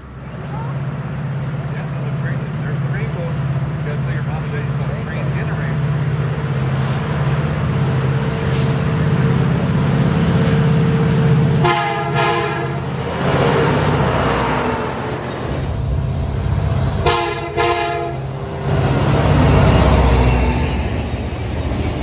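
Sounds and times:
locomotive engine rumble: 0:00.0 - 0:22.0
locomotive air horn blasts: 0:11.6 - 0:12.9, 0:17.0 - 0:18.3.

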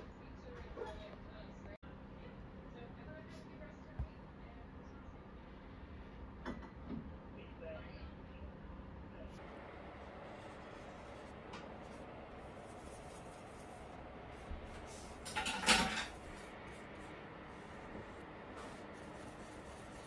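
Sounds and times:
paintbrush on plastic palette: 0:09.4 - 0:20.0
loud handling noise: 0:12.8 - 0:17.1.

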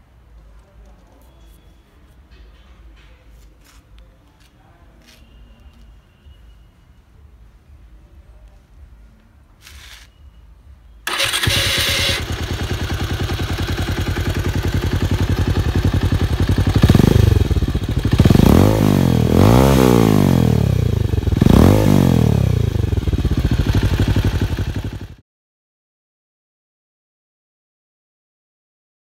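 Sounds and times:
motorcycle engine starting and idling: 0:11.0 - 0:25.2
motorcycle engine revving: 0:11.1 - 0:25.2.

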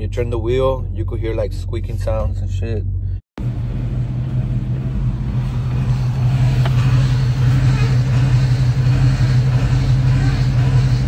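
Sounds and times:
car engine idling: 0:03.0 - 0:11.0.

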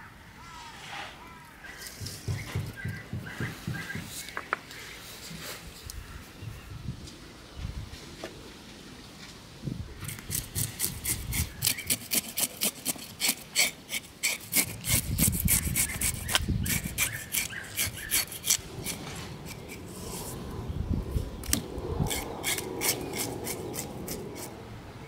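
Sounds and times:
knife scraping fish skin: 0:10.0 - 0:20.4, 0:21.4 - 0:24.5.

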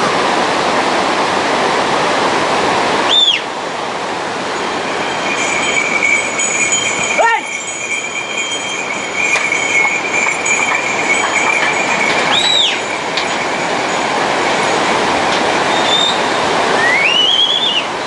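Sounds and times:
white water rushing: 0:00.0 - 0:18.0
rising-and-falling whistle: 0:03.1 - 0:03.5, 0:04.7 - 0:13.7, 0:15.6 - 0:17.9
thin high tone: 0:04.4 - 0:17.6.

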